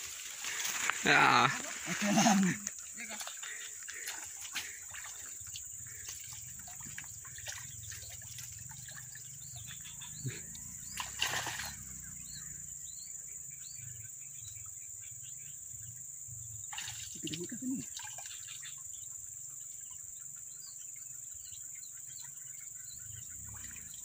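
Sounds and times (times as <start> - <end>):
high insect drone: 0.0 - 24.0
water sloshing and splashing: 1.6 - 10.0, 10.8 - 12.0, 16.7 - 18.4
bird chirps: 4.9 - 16.0.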